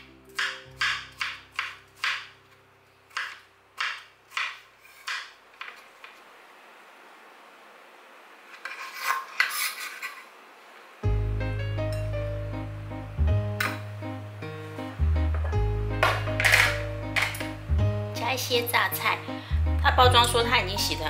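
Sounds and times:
scraping and rustling: 0:08.5 - 0:10.4.

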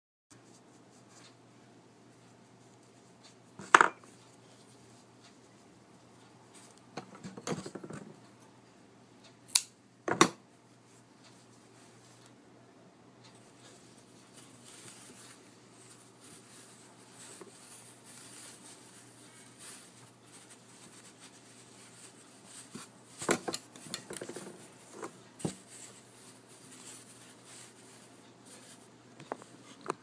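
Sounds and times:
yarn scarf rustling: 0:13.3 - 0:30.0.

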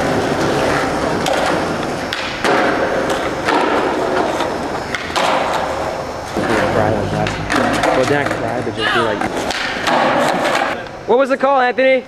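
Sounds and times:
skateboard wheels rolling on concrete: 0:00.0 - 0:12.0
skateboard knocks: 0:01.1 - 0:05.7, 0:06.4 - 0:10.8.

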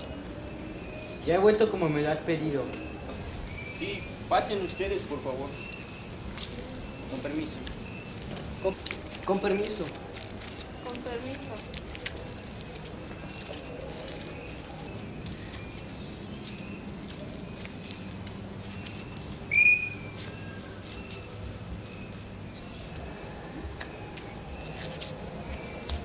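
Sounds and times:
crickets chirping: 0:00.0 - 0:26.0
loud high whistle: 0:19.5 - 0:20.2.

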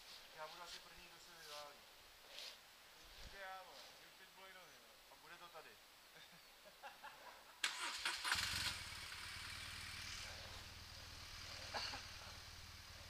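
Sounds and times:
motorcycle engine starting and idling: 0:07.6 - 0:13.0.

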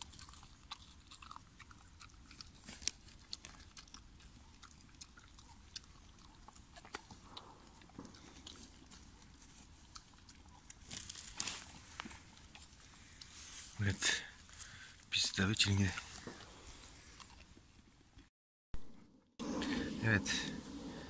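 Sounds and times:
dog crunching and chewing: 0:00.0 - 0:18.2
rustle: 0:02.4 - 0:17.9.

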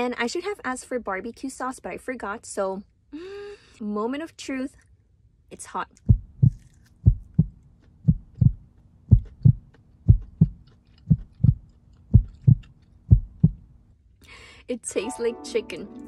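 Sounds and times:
faint steady hum: 0:00.0 - 0:15.9
heartbeat thumps: 0:06.0 - 0:13.8.

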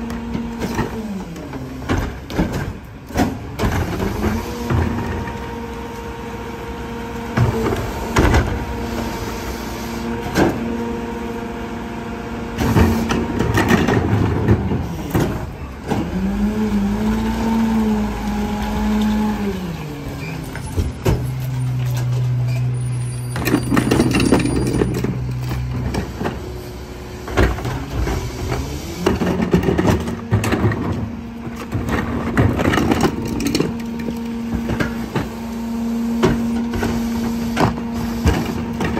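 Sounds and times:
garbage truck packer running: 0:00.0 - 0:38.9
plastic carts clanking: 0:23.4 - 0:26.1.

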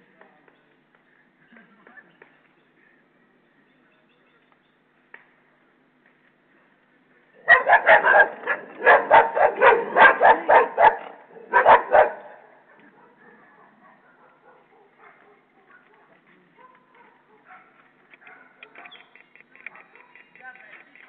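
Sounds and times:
dogs barking fiercely: 0:07.4 - 0:20.4.

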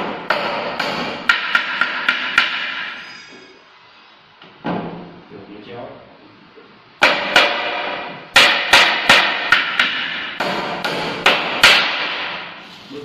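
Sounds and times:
hammer striking wood: 0:00.0 - 0:03.0, 0:07.0 - 0:12.6.

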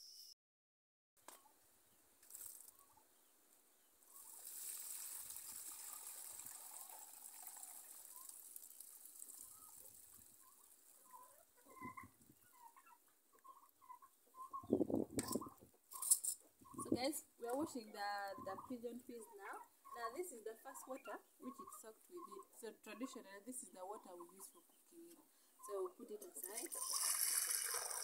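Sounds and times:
water pouring through sieve: 0:04.1 - 0:11.1, 0:26.4 - 0:28.0
bird calls: 0:09.4 - 0:27.2.

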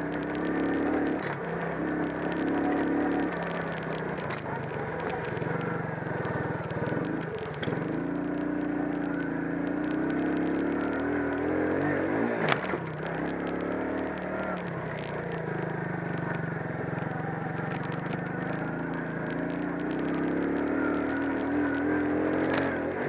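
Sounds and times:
atv engine revving: 0:00.0 - 0:23.0.

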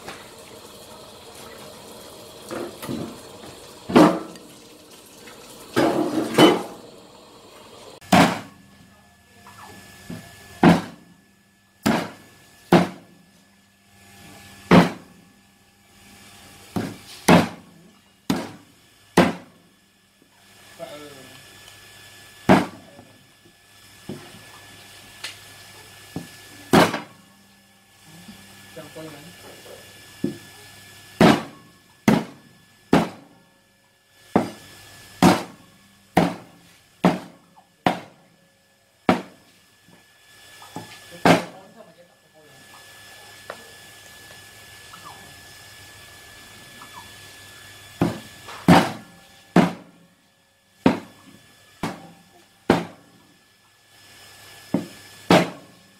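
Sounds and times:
knife chopping on wooden block: 0:16.8 - 0:17.6, 0:19.2 - 0:19.5, 0:32.1 - 0:33.2, 0:36.2 - 0:37.3, 0:39.1 - 0:39.4, 0:49.6 - 0:49.9, 0:52.7 - 0:53.0.

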